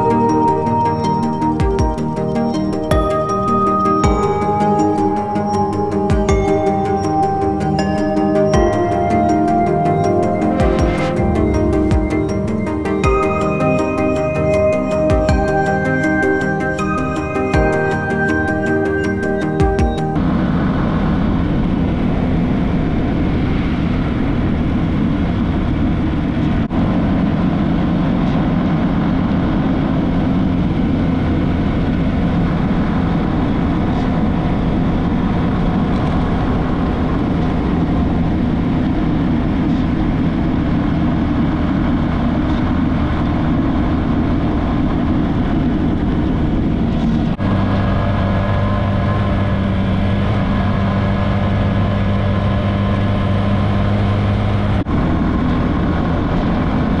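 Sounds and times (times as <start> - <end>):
rushing noise: 0.0 - 27.9.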